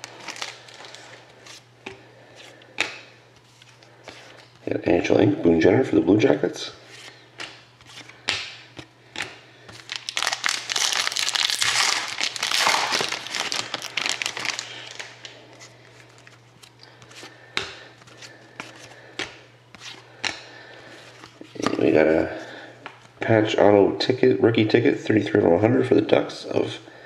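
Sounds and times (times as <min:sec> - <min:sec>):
plastic wrapper crinkling: 0:00.0 - 0:01.6, 0:09.7 - 0:16.8.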